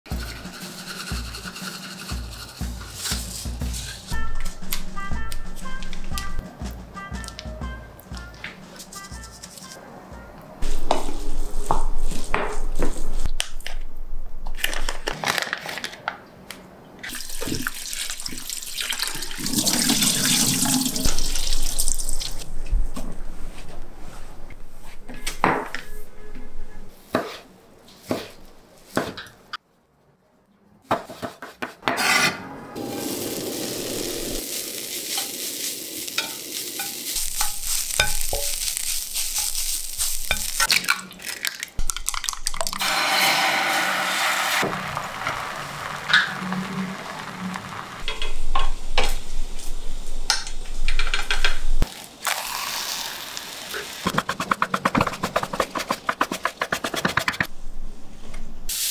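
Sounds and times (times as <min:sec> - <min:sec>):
water splashing at sink: 0:17.1 - 0:22.4
tofu sizzling in a pan: 0:33.1 - 0:40.6, 0:52.3 - 0:54.0.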